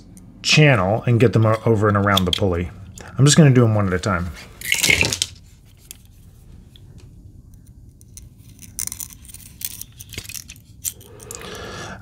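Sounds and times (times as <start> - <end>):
plastic part clicking and rattling: 7.6 - 11.0.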